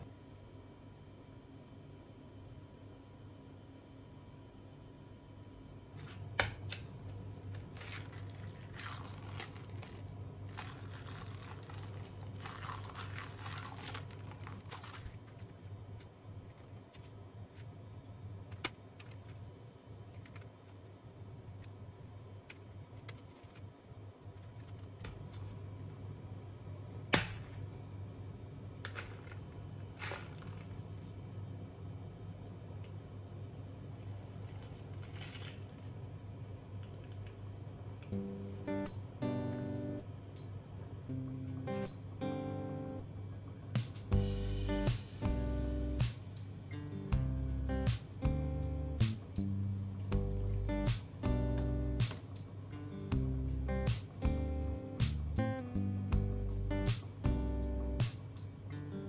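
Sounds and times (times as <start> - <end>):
low steady hum: 0.0 - 59.0
plastic film crinkling: 7.1 - 15.7.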